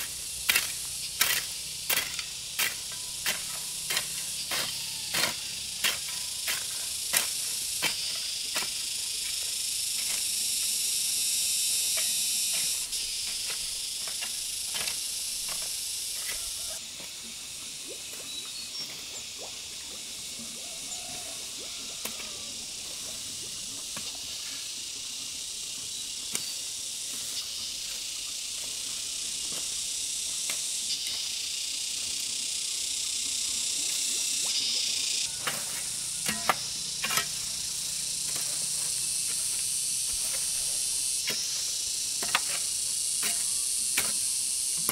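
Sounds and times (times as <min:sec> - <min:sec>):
hoe chopping into soil: 0:00.0 - 0:08.8, 0:35.4 - 0:37.5
insects droning: 0:00.0 - 0:44.9.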